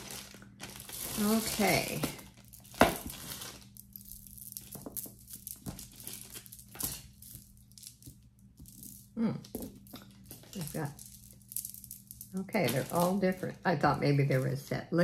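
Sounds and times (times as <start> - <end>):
plastic zip bag crinkling: 0.0 - 8.1, 12.3 - 13.5
small clicks of beads and metal: 3.8 - 13.2.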